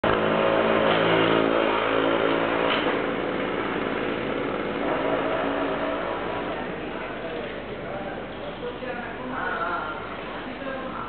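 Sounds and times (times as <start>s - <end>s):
deep engine hum: 0.0s - 8.7s
higher engine hum: 0.0s - 11.0s.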